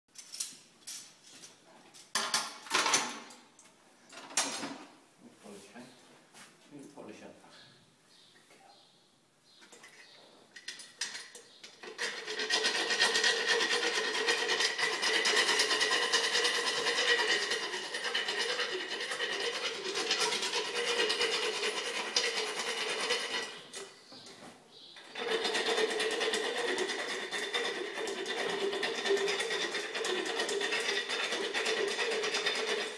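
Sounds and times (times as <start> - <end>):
dental float rasping teeth: 11.9 - 23.7, 25.1 - 32.9.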